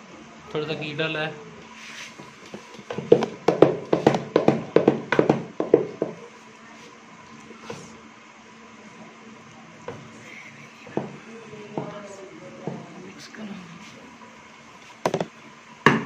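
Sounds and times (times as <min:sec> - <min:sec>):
wooden masher knocking in metal pot: 0:02.9 - 0:06.2.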